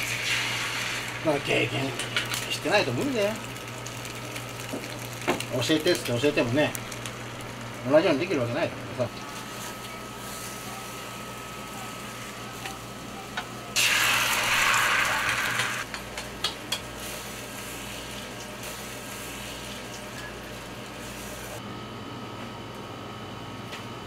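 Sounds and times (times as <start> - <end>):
egg sizzling in a pan: 0.0 - 8.4, 13.7 - 21.6.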